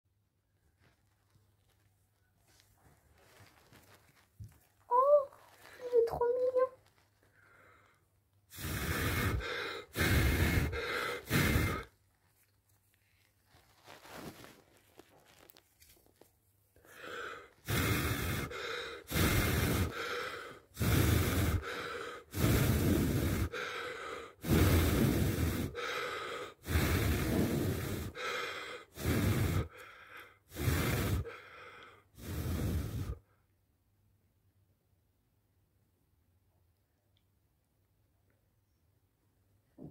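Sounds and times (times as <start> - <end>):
breath puffs into microphone: 6.9 - 12.0, 16.8 - 33.4.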